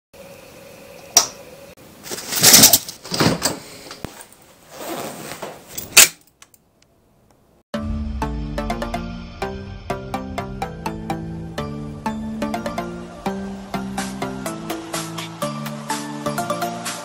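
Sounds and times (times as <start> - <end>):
jacket rustling: 4.0 - 5.8.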